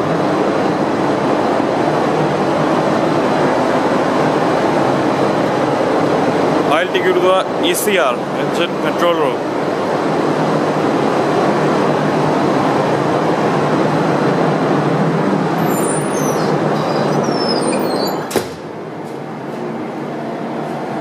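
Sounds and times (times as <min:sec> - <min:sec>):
engine-room machinery din: 0:00.0 - 0:21.0
door squeaking: 0:15.6 - 0:18.6
door banging shut: 0:18.1 - 0:18.6.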